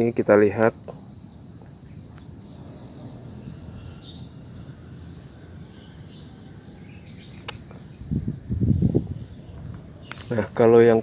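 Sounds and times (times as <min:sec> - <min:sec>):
crickets chirping: 0:00.0 - 0:11.0
low outdoor rumble: 0:01.0 - 0:11.0
sharp click: 0:07.3 - 0:07.8.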